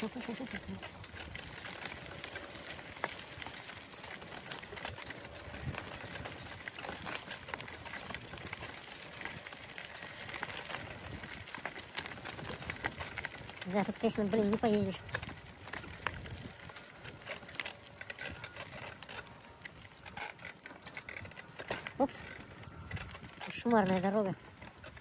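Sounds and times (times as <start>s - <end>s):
wheels rolling over gravel: 0.0s - 25.0s.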